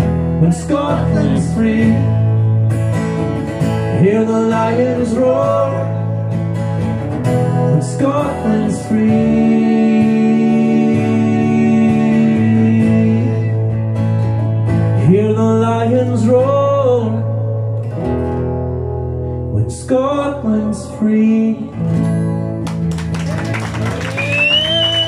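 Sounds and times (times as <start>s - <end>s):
acoustic guitars strumming: 0.0s - 23.8s.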